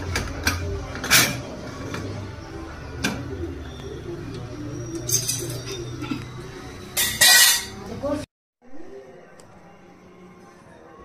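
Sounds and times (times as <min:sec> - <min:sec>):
metal lid clinking: 0:07.0 - 0:07.8.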